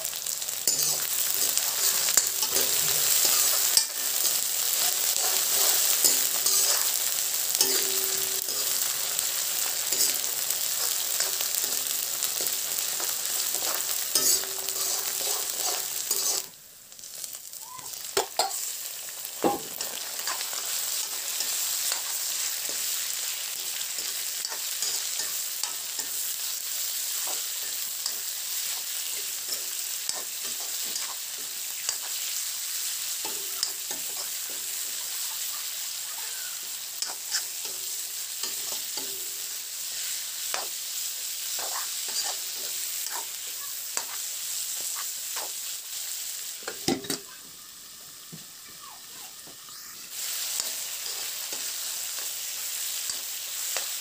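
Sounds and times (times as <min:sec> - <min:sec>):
food sizzling in oil: 0:00.0 - 0:54.0
metal ladle scraping pan: 0:00.7 - 0:04.2, 0:13.0 - 0:16.5.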